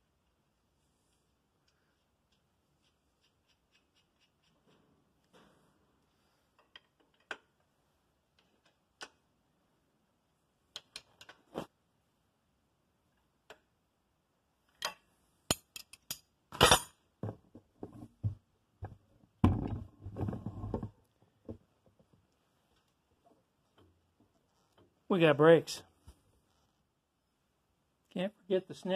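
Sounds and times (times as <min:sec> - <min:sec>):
metal tools clinking and knocking: 0:14.8 - 0:17.0.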